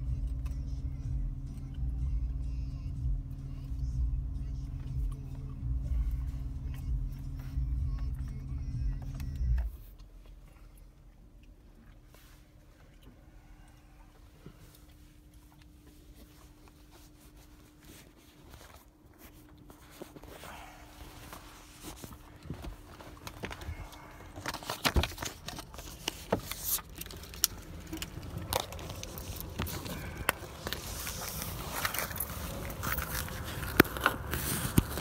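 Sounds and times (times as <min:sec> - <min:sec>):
faint steady hum: 0:00.0 - 0:35.0
phone rubbing against clothing: 0:28.7 - 0:35.0.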